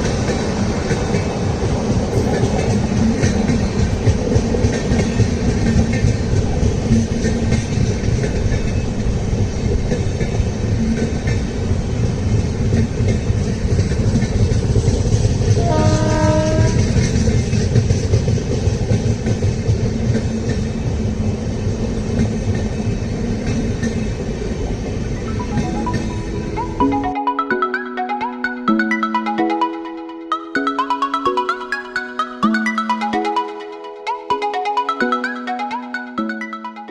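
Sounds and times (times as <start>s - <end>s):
train rushing past: 0.0s - 36.9s
train horn: 15.5s - 17.0s.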